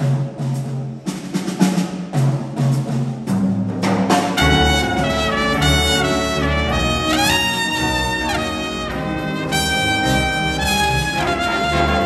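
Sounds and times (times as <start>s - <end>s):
jazz big band playing: 0.0s - 12.0s
horn section held chords: 4.4s - 12.0s.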